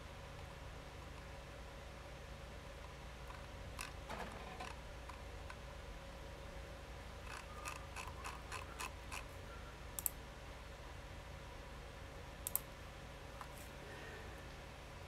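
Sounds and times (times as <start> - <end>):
faint steady hum: 0.0 - 15.0
mouse double clicks: 12.4 - 12.6
keyboard keystroke clicks: 12.4 - 12.7.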